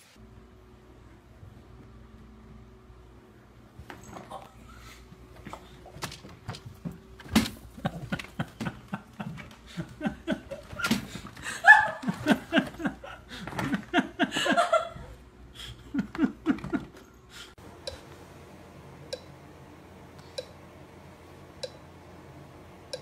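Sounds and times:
person laughing: 7.7 - 17.1.

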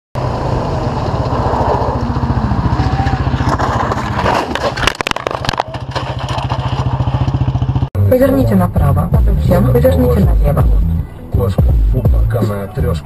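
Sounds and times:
vehicle engine running: 0.2 - 13.0
sharp knocks and clatter: 3.4 - 7.9.

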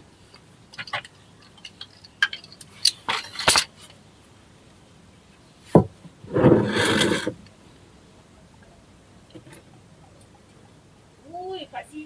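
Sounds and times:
scraping rustle: 5.6 - 7.4.

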